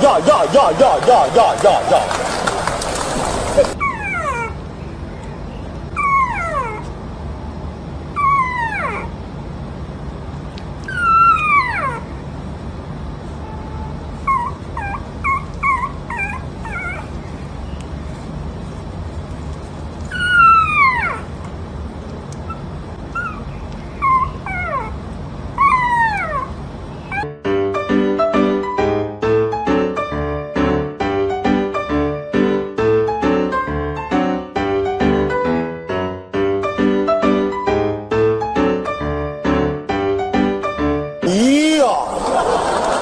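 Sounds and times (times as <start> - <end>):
puppy whimpering and howling: 3.6 - 4.7, 5.9 - 7.0, 8.1 - 9.2, 10.8 - 12.2, 13.7 - 17.6, 20.1 - 21.4, 22.4 - 27.3.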